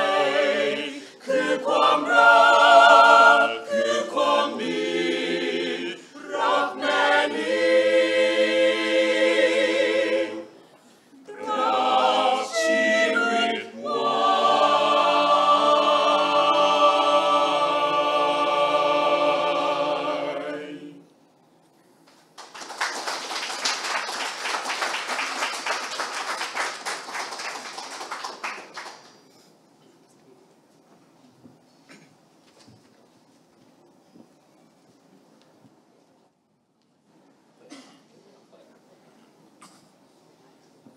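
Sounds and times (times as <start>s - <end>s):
choir singing a cappella: 0.0s - 21.4s
audience applause: 22.4s - 29.3s.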